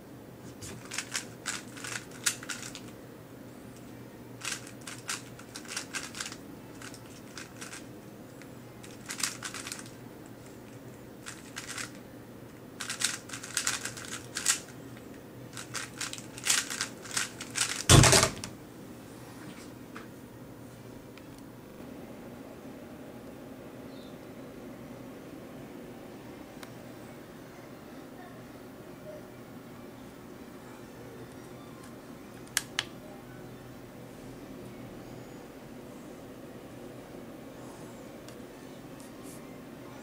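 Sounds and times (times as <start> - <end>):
puzzle cube clicking: 0.7 - 2.8, 4.4 - 7.8, 8.9 - 9.9, 11.3 - 12.0, 12.8 - 14.7, 15.6 - 17.9.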